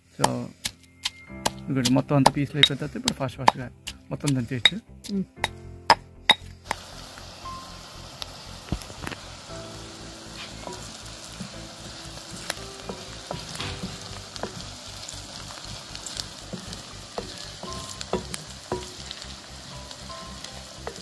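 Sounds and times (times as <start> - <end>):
vegetables sizzling in hot oil: 6.7 - 21.0
wooden spoon stirring: 8.8 - 21.0.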